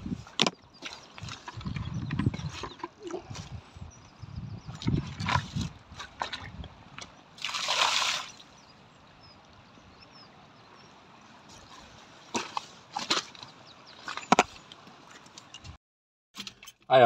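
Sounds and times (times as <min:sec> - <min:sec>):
water splash: 0:07.4 - 0:08.5
stones knocking underfoot: 0:12.3 - 0:15.0.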